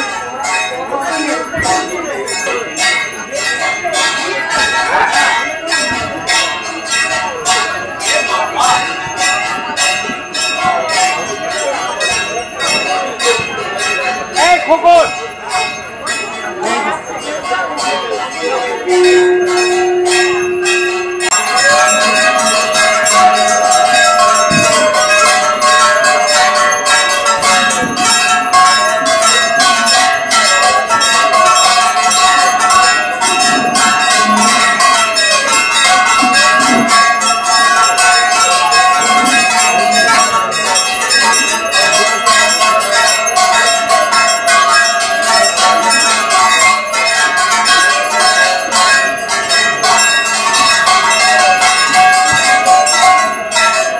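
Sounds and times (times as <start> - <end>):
bells clanging rapidly: 0.0 - 53.9
long swelling note: 18.9 - 21.5.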